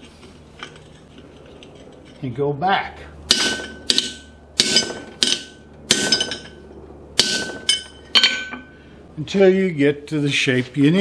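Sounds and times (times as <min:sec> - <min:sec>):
hammer striking steel: 0:03.3 - 0:06.6, 0:07.2 - 0:08.7.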